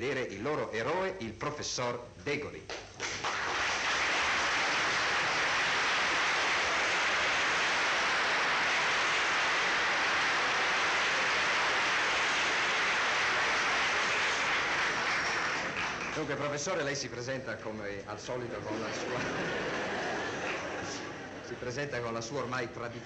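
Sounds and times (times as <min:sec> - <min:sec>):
audience applauding: 0:03.0 - 0:16.7, 0:18.6 - 0:21.8.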